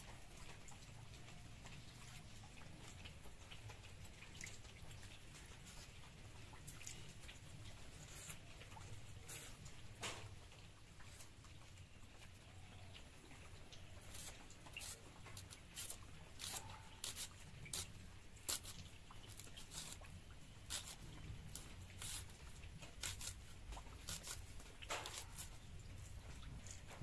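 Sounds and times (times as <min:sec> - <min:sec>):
onion skin crackling and tearing: 0:13.8 - 0:27.0.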